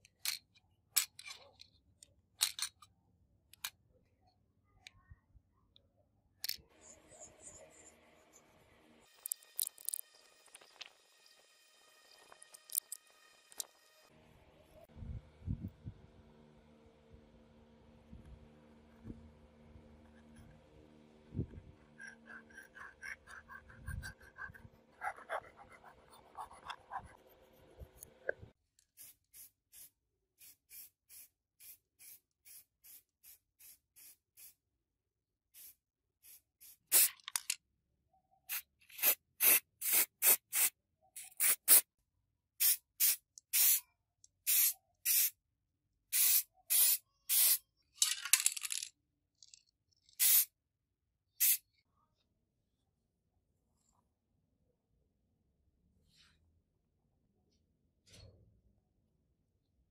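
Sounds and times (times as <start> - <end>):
hand file rasping: 21.9 - 28.2
spray paint hissing: 28.9 - 34.6, 35.6 - 37.5, 38.5 - 41.8, 42.6 - 43.8, 44.4 - 45.3, 46.1 - 47.7, 50.2 - 50.5, 51.4 - 51.6.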